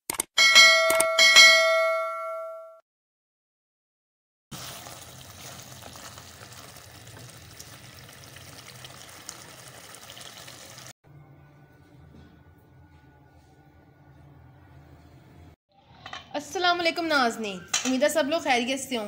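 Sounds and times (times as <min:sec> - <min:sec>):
food sizzling in a pan: 0:04.5 - 0:11.0.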